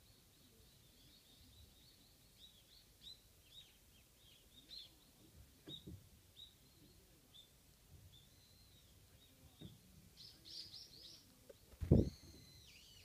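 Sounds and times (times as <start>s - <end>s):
high bird chirping: 10.2s - 13.0s.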